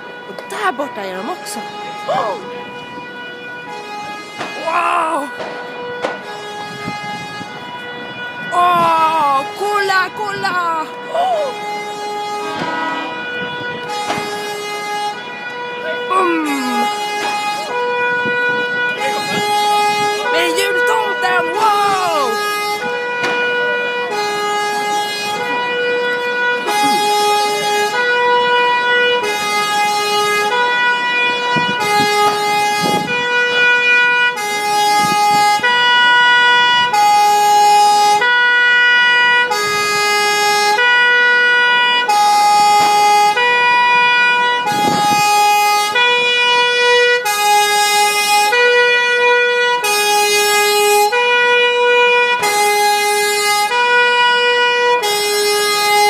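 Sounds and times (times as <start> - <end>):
two-tone fire engine siren: 0.0 - 56.0.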